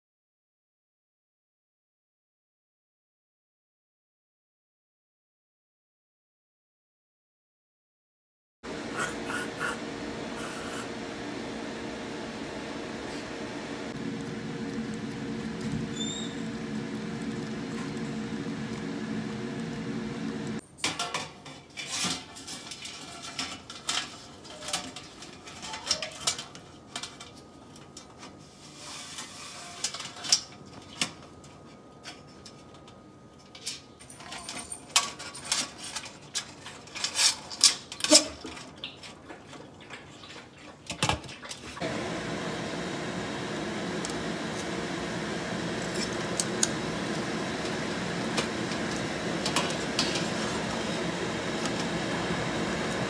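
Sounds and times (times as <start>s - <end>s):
steady machine hum: 8.7s - 20.6s, 41.8s - 53.0s.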